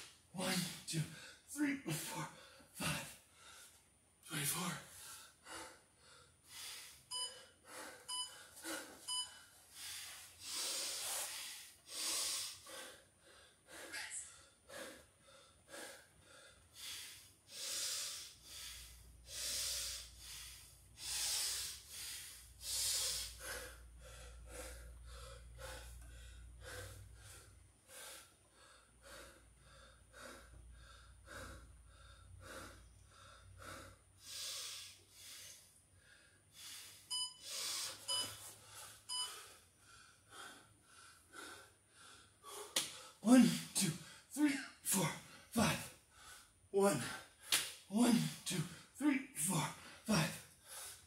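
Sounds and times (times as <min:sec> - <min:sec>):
man panting: 0:00.3 - 0:51.0
interval timer beeps: 0:07.1 - 0:07.4, 0:08.1 - 0:08.4, 0:09.1 - 0:09.4, 0:37.1 - 0:37.4, 0:38.1 - 0:38.4, 0:39.1 - 0:39.4.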